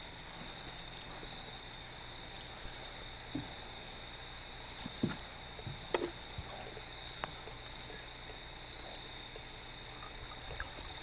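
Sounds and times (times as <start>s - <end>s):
high insect trill: 0.0s - 11.0s
fish splashing in water: 9.2s - 11.0s.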